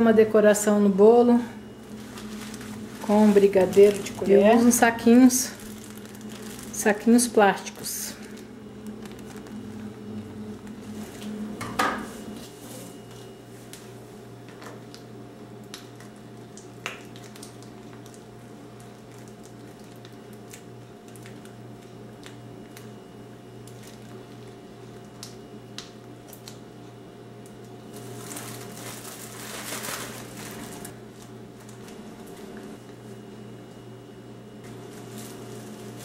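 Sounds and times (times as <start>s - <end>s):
steady low hum: 0.0s - 36.0s
soft squishing: 1.7s - 4.9s, 5.5s - 7.0s, 7.8s - 11.4s
plastic bag crinkling: 1.7s - 11.5s, 17.0s - 22.9s, 23.6s - 25.1s, 27.9s - 32.8s, 34.6s - 36.0s.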